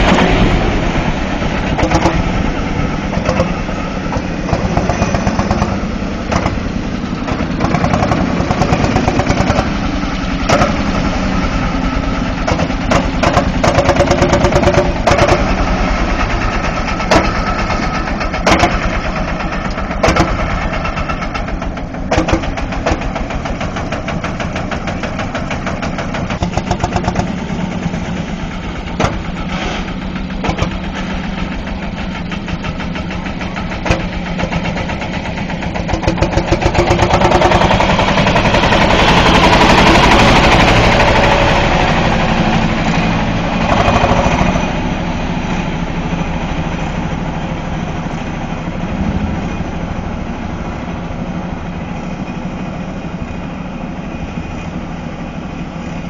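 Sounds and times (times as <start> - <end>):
tractor engines chugging: 0.0 - 56.0.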